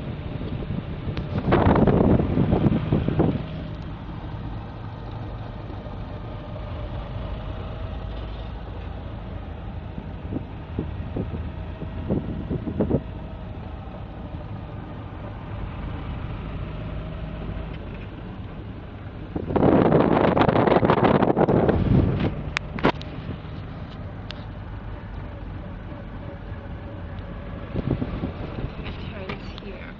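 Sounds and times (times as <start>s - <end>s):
vehicle engine and road rumble: 0.0s - 29.9s.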